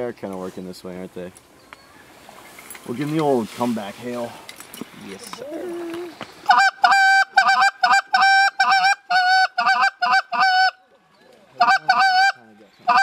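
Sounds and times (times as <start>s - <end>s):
goose call honks: 5.7s - 10.8s, 11.6s - 13.0s.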